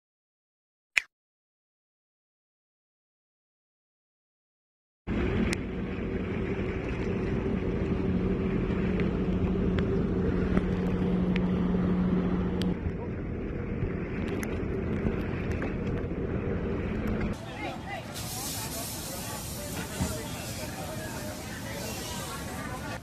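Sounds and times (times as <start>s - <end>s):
motorboat engine running: 5.1s - 23.0s
water rushing: 5.1s - 23.0s.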